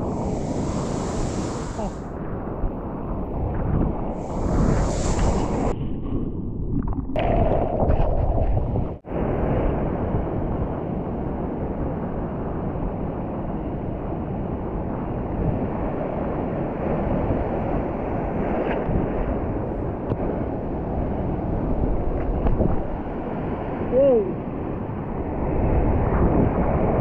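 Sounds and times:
surf washing on beach: 0.0s - 5.8s
wind buffeting microphone: 0.0s - 27.0s.

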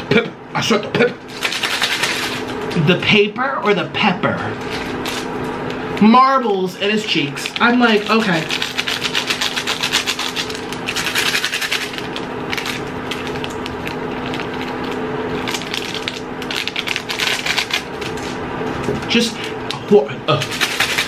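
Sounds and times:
steady low hum: 0.0s - 21.0s
powder shaken from paper sachet: 1.3s - 2.5s, 7.4s - 18.2s, 20.4s - 21.0s.

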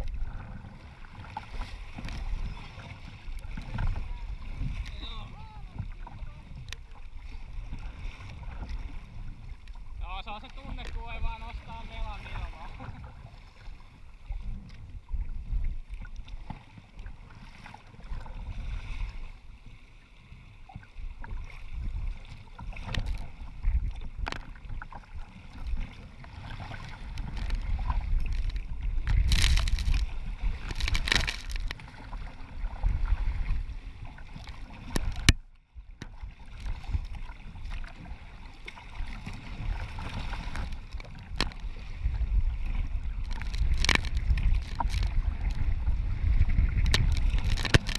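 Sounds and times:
water splashing against kayak hull: 0.0s - 47.9s
wind buffeting microphone: 39.4s - 47.9s.

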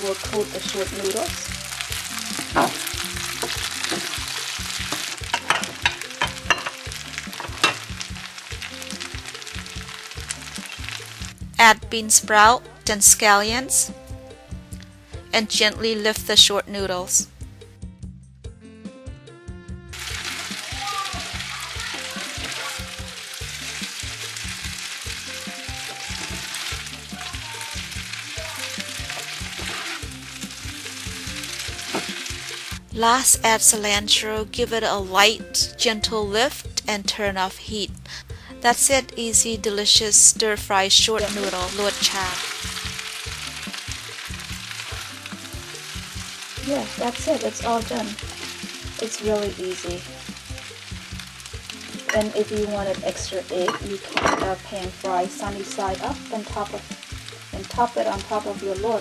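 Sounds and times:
food sizzling in frying pan: 0.0s - 17.6s, 19.9s - 59.0s
background music with bass line: 0.0s - 53.6s
spatula stirring in pan: 1.7s - 11.4s, 20.0s - 32.8s
spatula scraping pan: 28.5s - 30.6s, 31.4s - 32.4s.

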